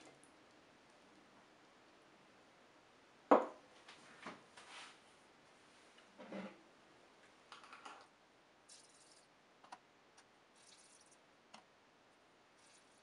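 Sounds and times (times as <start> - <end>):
soft rustles: 3.8 - 6.0.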